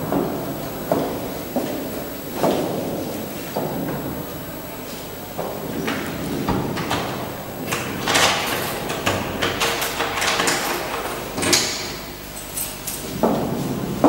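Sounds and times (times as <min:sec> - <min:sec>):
wooden door pulled shut: 0:05.4 - 0:11.9
door handle and lock clicking: 0:05.9 - 0:11.9.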